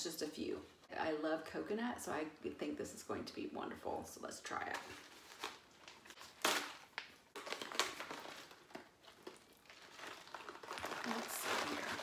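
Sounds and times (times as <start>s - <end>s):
plastic pouch crinkling: 5.0s - 12.0s.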